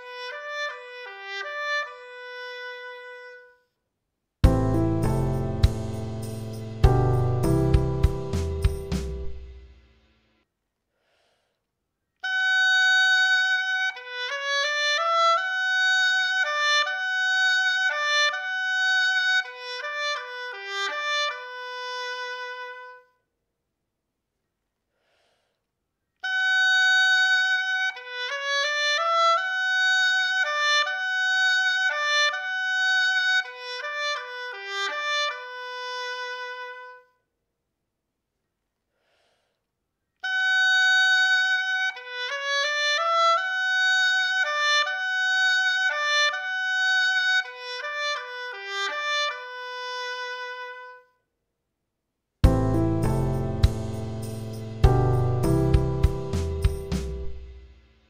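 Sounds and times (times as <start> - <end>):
oboe melody: 0.0 - 3.6, 52.4 - 57.6.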